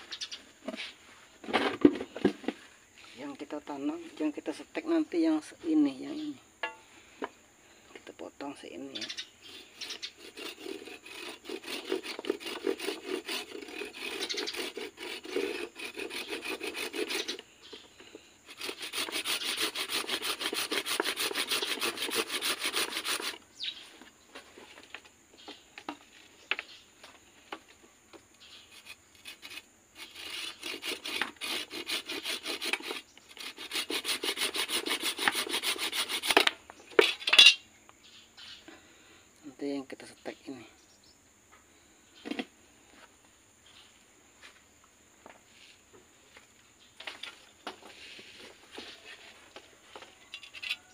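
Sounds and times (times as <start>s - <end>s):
hand saw cutting wood: 9.5s - 17.4s, 18.5s - 23.4s, 28.7s - 37.2s.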